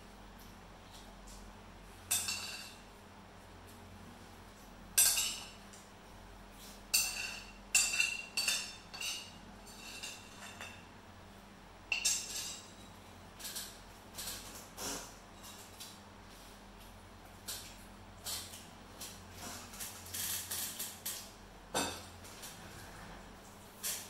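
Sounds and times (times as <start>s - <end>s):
metal spoon clinking on plate: 2.1s - 2.8s.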